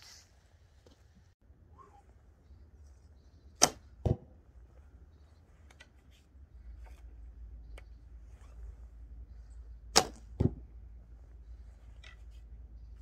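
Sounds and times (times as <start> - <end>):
arrow striking target: 3.6 - 4.4, 9.9 - 10.7.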